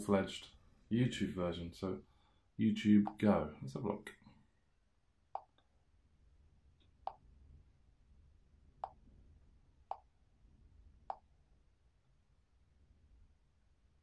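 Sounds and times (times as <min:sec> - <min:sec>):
fingertip tapping touchscreen: 0:05.4 - 0:05.6, 0:08.8 - 0:09.0, 0:09.9 - 0:10.1.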